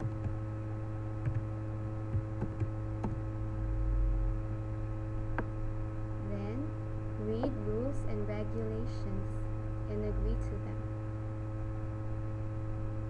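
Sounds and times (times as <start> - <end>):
electrical mains hum: 0.0 - 13.0
brief low rumble: 2.2 - 5.6.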